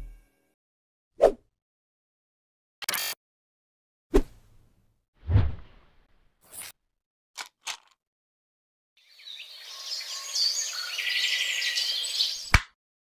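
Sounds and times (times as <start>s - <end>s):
birds chirping: 9.0s - 12.5s.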